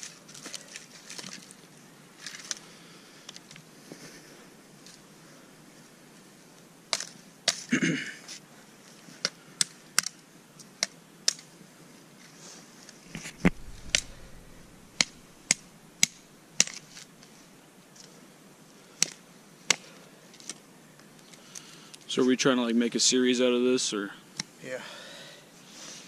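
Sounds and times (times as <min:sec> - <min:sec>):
twigs rustling: 0:00.0 - 0:02.6, 0:12.9 - 0:18.1
machete chopping wooden stick: 0:13.1 - 0:16.9.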